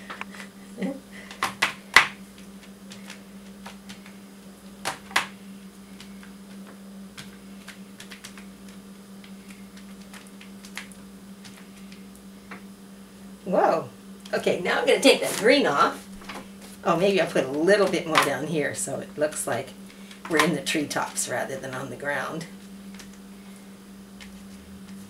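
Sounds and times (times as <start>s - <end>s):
steady low hum: 0.0s - 25.0s
foot tapping on paper: 1.2s - 4.2s, 6.0s - 12.6s.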